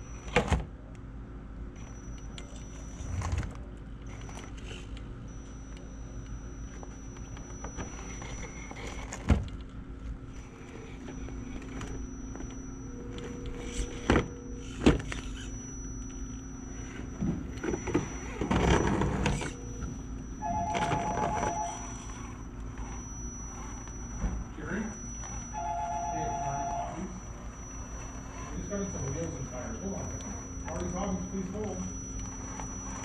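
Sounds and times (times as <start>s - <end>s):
toy car motor and gear hum: 0.0s - 0.7s, 1.7s - 33.0s.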